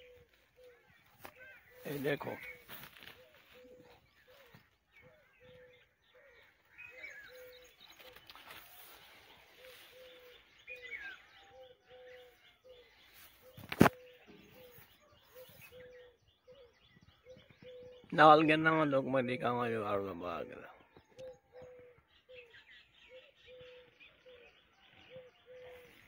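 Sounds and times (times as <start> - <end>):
higher bird chirps: 0.0 - 26.0.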